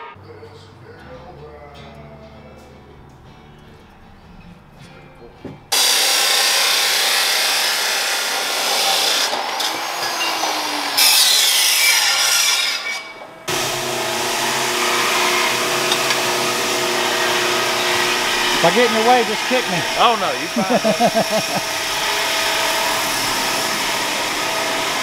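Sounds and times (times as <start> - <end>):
chop saw grinding steel: 5.7 - 25.0.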